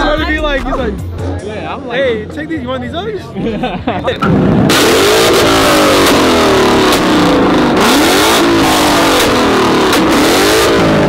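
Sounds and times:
car engine revving: 4.1 - 11.0
exhaust cracks: 4.2 - 11.0.

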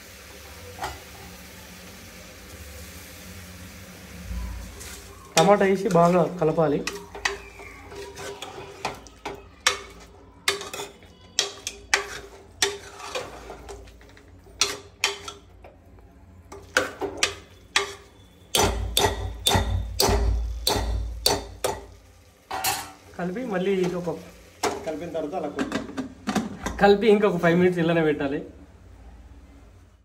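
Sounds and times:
spoon scraping a pot: 4.8 - 15.5, 16.5 - 19.6.

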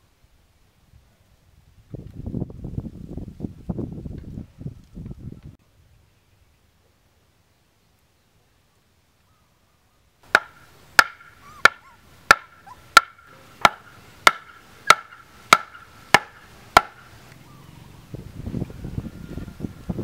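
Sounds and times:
wooden club knocking stake: 10.3 - 17.1.

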